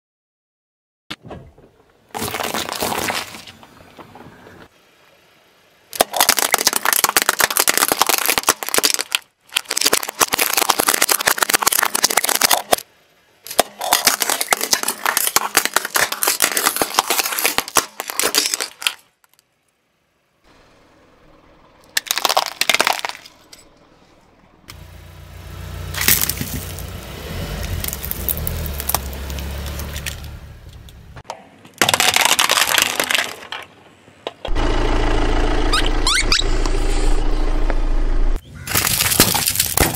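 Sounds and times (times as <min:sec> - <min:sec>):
tyre crushing objects: 0:02.1 - 0:03.6, 0:13.5 - 0:19.0, 0:25.9 - 0:31.0, 0:38.6 - 0:39.9
low rumble: 0:34.5 - 0:38.4.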